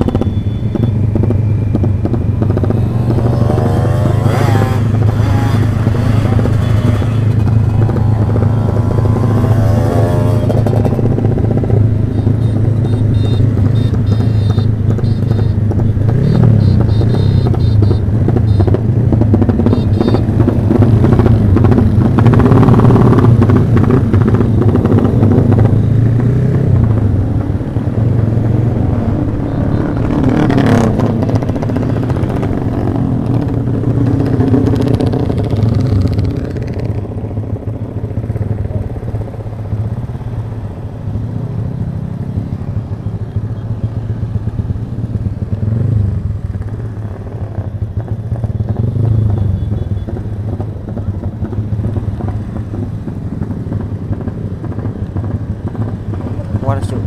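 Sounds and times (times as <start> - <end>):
motorcycle engine running: 0.0 - 57.0
other motorcycles: 0.0 - 57.0
wind rushing: 2.4 - 11.9.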